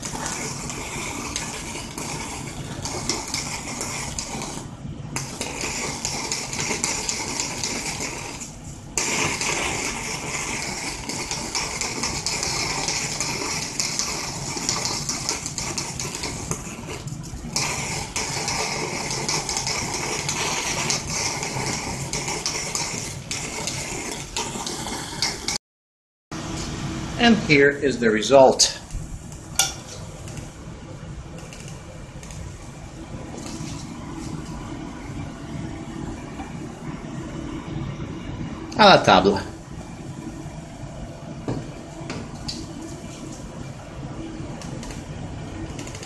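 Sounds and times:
plasma arc crackling buzz: 0.0 - 25.6, 44.4 - 46.0
low hum: 28.7 - 38.8, 39.4 - 46.0.

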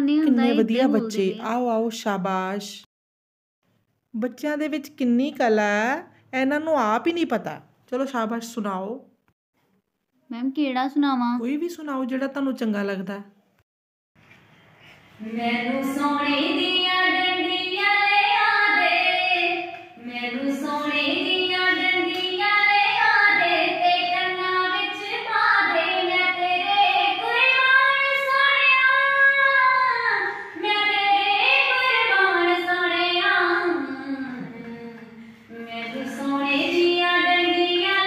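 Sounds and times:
girl singing solo: 0.0 - 1.2.

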